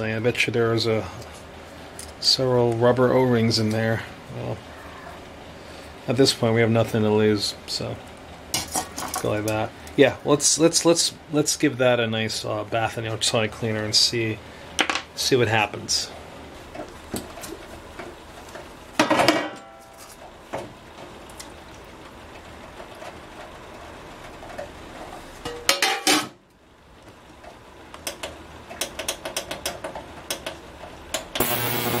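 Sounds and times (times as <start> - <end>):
ultrasonic cleaner buzzing: 31.4 - 32.0.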